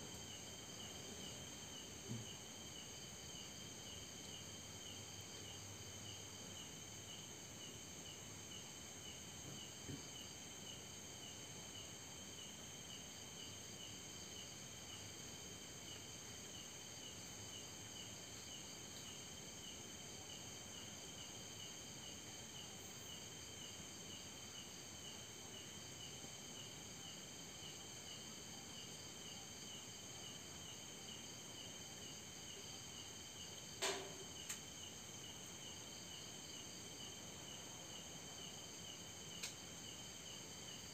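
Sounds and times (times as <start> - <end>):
crickets chirping: 0.0 - 40.9
small click: 39.4 - 39.6.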